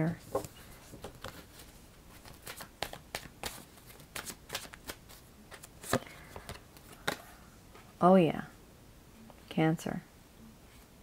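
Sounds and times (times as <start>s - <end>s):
cards being shuffled: 0.3s - 7.3s.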